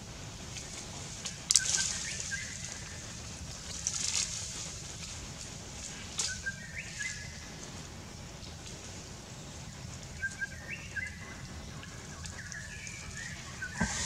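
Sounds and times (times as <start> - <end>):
crackling rustle: 0.0 - 14.0
low rumble: 13.3 - 14.0.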